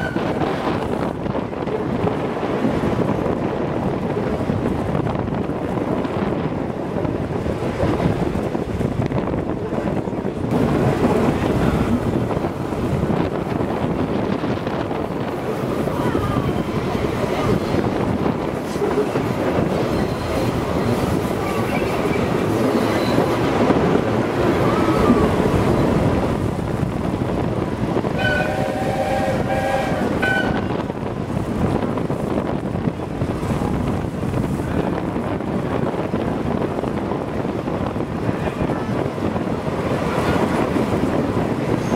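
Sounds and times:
train wheels rumbling on rails: 0.0 - 41.9
wind: 0.0 - 41.9
steam locomotive whistle chord: 28.2 - 30.6.

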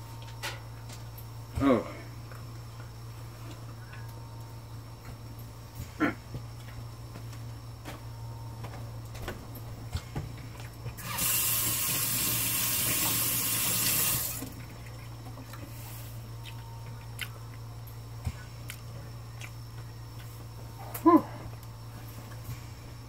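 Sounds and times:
low hum: 0.0 - 11.0, 14.2 - 23.0
stream of liquid running: 11.0 - 14.9.

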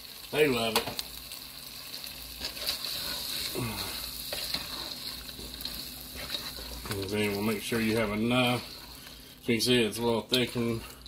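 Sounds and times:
meat sizzling in a pot: 0.0 - 11.0
spatula scraping a pot: 2.4 - 3.5, 4.2 - 9.3.

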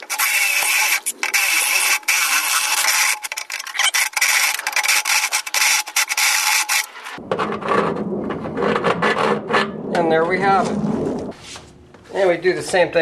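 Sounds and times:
drill grinding through metal: 0.0 - 6.9.

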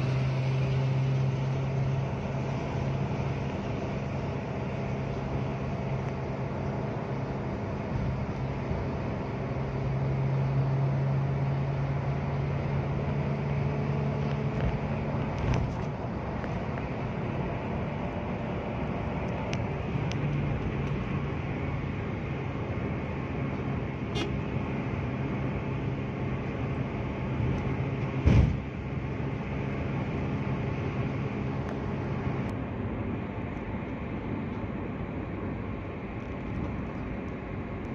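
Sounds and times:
car engine drone: 0.0 - 37.9
loud thump: 28.2 - 28.7.

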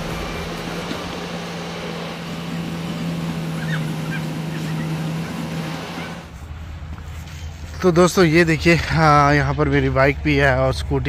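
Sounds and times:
heavy machinery engine hum: 0.0 - 7.8
construction site noise: 0.0 - 11.0.

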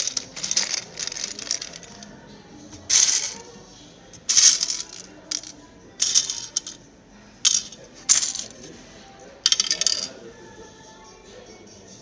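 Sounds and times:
plastic bricks rattling in containers: 0.0 - 2.0, 2.9 - 3.4, 4.3 - 6.8.

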